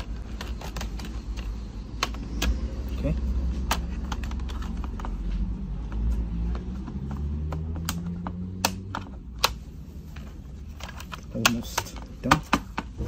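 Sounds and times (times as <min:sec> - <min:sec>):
plastic clips snapping: 0:07.4 - 0:09.7.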